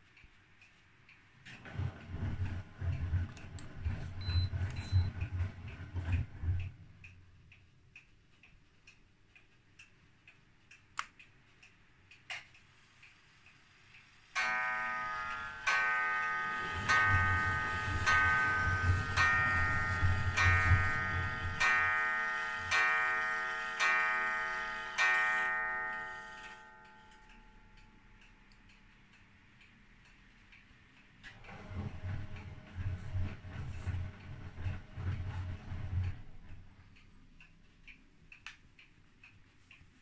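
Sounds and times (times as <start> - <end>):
washing machine drum rumbling: 1.5 - 7.0, 16.6 - 21.7, 31.2 - 36.8.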